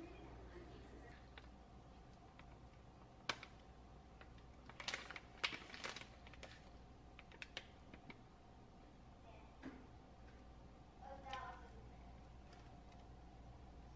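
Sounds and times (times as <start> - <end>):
plastic pouch crinkling: 1.2 - 8.2.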